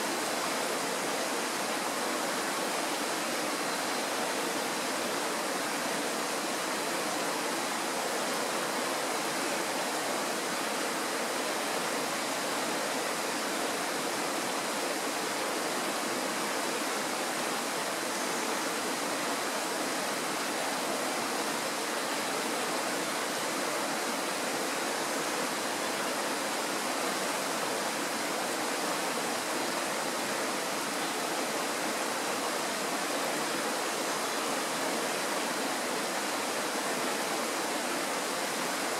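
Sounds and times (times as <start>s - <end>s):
mountain stream rushing: 0.0s - 38.9s.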